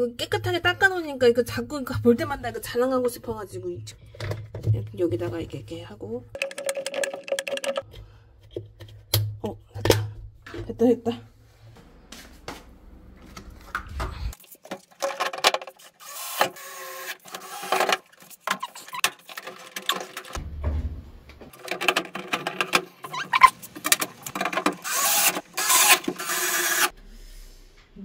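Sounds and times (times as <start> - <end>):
plastic parts clicking and knocking: 4.0 - 4.9, 6.4 - 9.2, 14.6 - 26.9.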